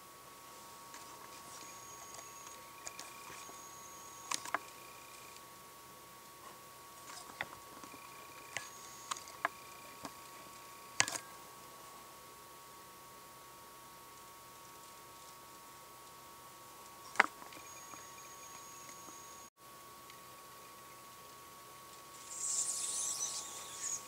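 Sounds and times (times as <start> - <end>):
faint steady hum: 0.0 - 24.0
thin high tones: 22.1 - 24.0.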